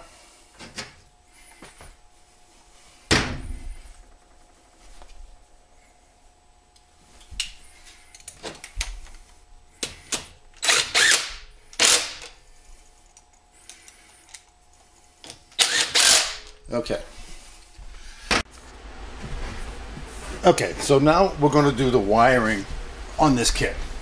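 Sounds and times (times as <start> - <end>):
small clicks of bit and bolts: 8.1 - 8.9, 13.0 - 14.6
cordless driver spinning bolts: 10.6 - 12.3, 15.6 - 16.6.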